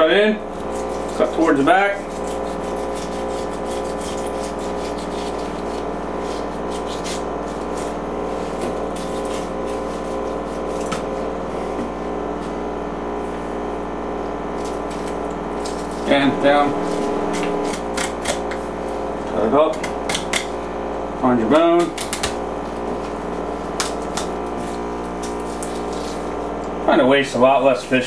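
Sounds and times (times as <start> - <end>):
steady background hum: 0.0 - 28.0
knife rasping through fish scales: 0.6 - 11.0, 24.6 - 26.4.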